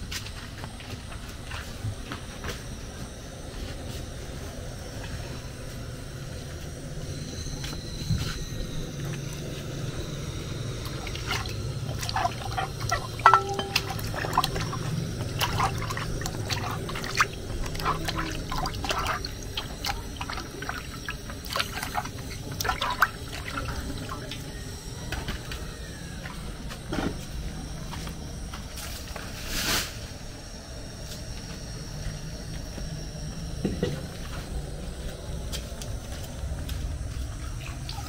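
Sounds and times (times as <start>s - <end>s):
water splashing in a metal basin: 10.8s - 24.5s, 37.6s - 38.0s
water being poured: 11.0s - 24.2s.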